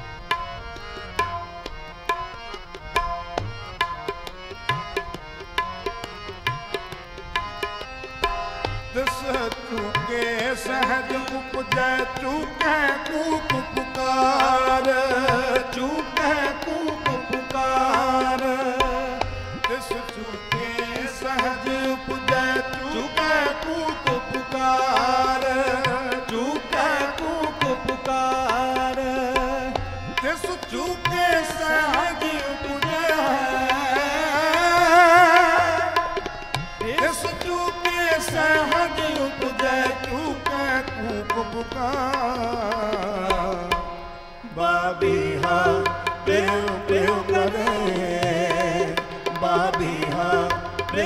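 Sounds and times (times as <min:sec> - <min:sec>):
harmonium: 0:00.0 - 0:51.0
tabla playing: 0:00.0 - 0:51.0
person singing: 0:44.4 - 0:51.0.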